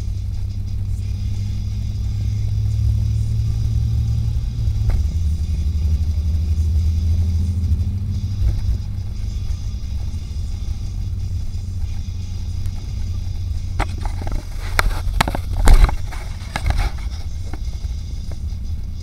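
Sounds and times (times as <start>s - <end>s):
car engine and road rumble: 0.0s - 19.0s
sharp clicks and knocks: 13.7s - 18.5s.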